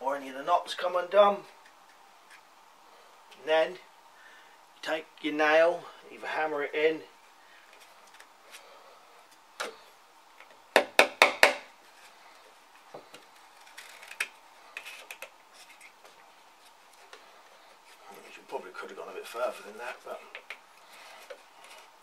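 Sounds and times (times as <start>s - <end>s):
hammer knocking nail into wood: 10.7s - 11.7s.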